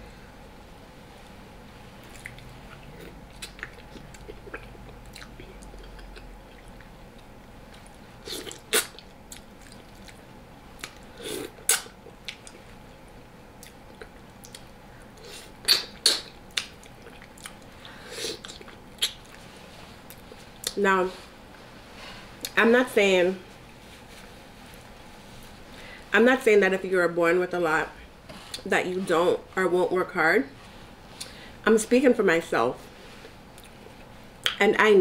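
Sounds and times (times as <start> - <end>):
person chewing food: 2.0 - 10.2, 10.8 - 12.7, 13.6 - 20.8, 33.5 - 34.6
wet mouth clicks: 15.6 - 17.7, 18.4 - 19.4.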